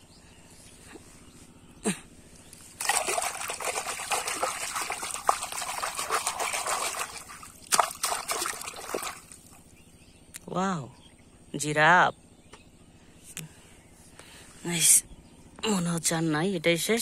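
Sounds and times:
water splashing and sloshing: 0:02.6 - 0:09.7.

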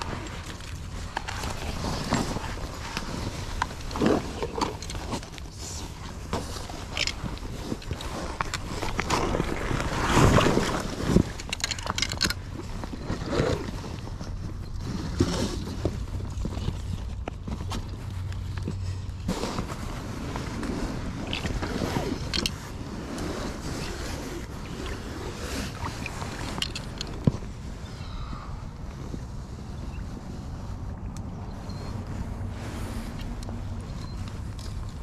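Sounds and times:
rustling and scuffs of handling gear: 0:12.3 - 0:27.8.

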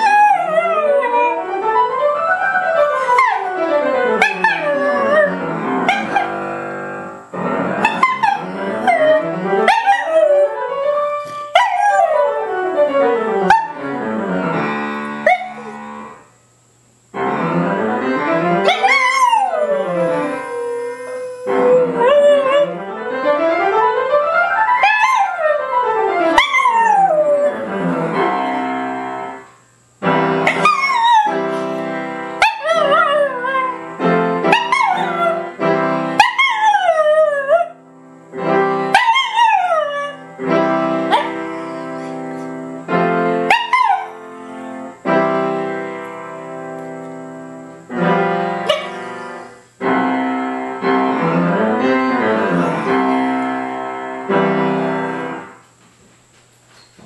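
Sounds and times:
dog howling: 0:00.0 - 0:01.6, 0:04.2 - 0:06.3, 0:18.7 - 0:22.8, 0:26.4 - 0:27.7, 0:30.6 - 0:31.4, 0:34.5 - 0:35.5, 0:52.2 - 0:53.4
music with sustained chords: 0:30.0 - 0:43.5, 0:44.1 - 0:55.5.

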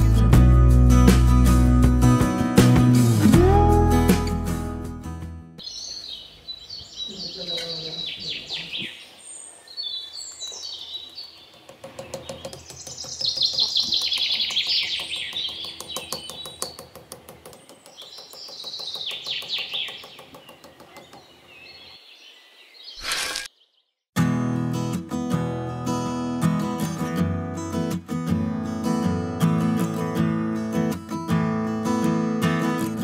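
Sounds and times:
strummed acoustic guitar music: 0:00.0 - 0:05.6, 0:24.2 - 0:33.0
birds chirping and singing: 0:05.6 - 0:24.0.

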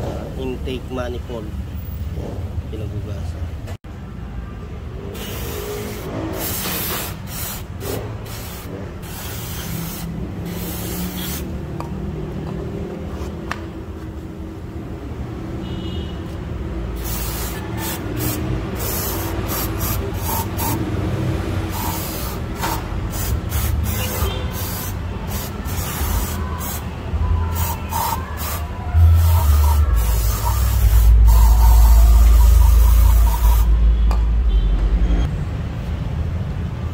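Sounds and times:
aerosol spray hissing: 0:05.2 - 0:11.5, 0:17.0 - 0:20.9, 0:21.6 - 0:26.9, 0:27.5 - 0:33.8.

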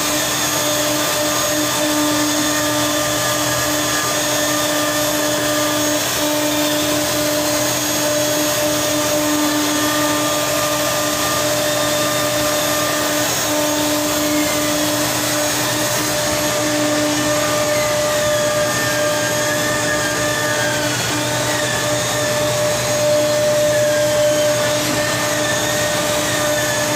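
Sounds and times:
machine motor hum and whine: 0:00.0 - 0:26.9.

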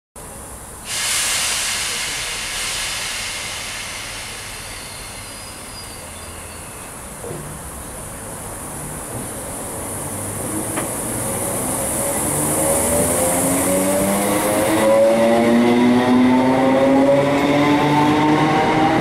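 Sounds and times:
train hiss: 0:00.8 - 0:08.5
faint high squeal: 0:01.9 - 0:07.2.

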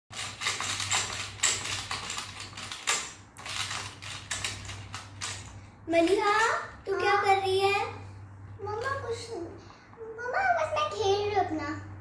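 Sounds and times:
plastic balls rattling: 0:00.1 - 0:06.5.

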